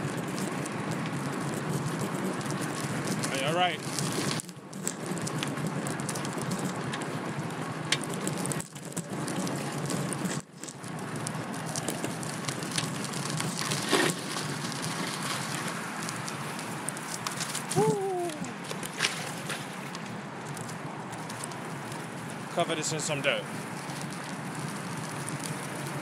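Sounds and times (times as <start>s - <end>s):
tyre and road noise: 0.0s - 26.0s
wind on microphone: 17.6s - 18.6s.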